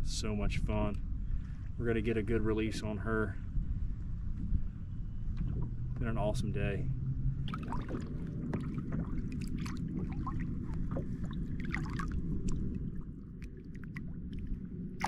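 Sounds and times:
low rumble: 0:00.0 - 0:15.0
water splashing and trickling: 0:07.3 - 0:15.0.

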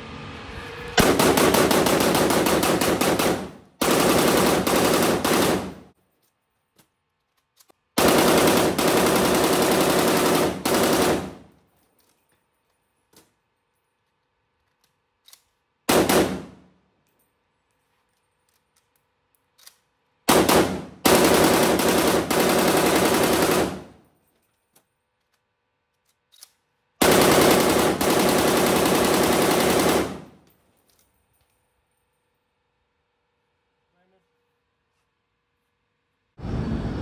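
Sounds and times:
rifle firing automatic bursts: 0:01.0 - 0:05.9, 0:08.0 - 0:11.5, 0:15.9 - 0:16.6, 0:20.3 - 0:24.0, 0:27.0 - 0:30.4.

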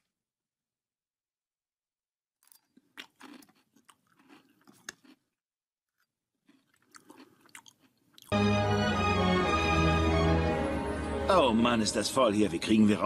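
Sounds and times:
chewing crunchy cereal: 0:02.4 - 0:08.4.

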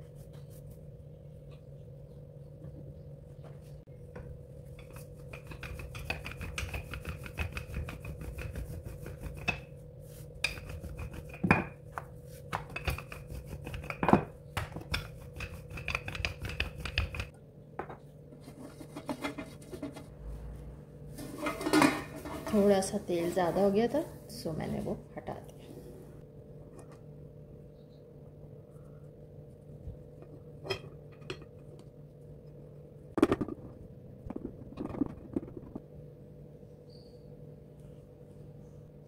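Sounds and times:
steady low hum: 0:00.0 - 0:39.0
brush spreading oil in pan: 0:04.6 - 0:11.4.

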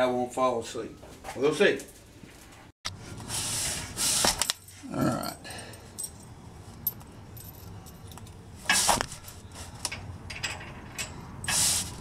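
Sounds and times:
metal washer and nut clinking: 0:04.4 - 0:08.4, 0:09.2 - 0:11.6.

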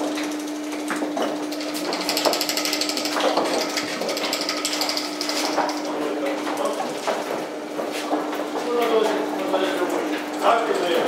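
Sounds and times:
motor hum: 0:00.0 - 0:11.0
machinery knocks: 0:01.2 - 0:08.7.

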